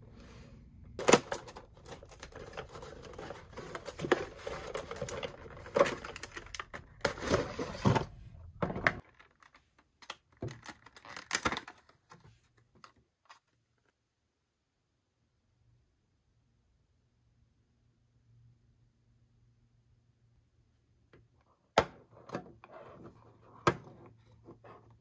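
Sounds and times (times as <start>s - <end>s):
plastic toy packaging clicks and crinkles: 1.0s - 8.1s, 8.8s - 13.9s.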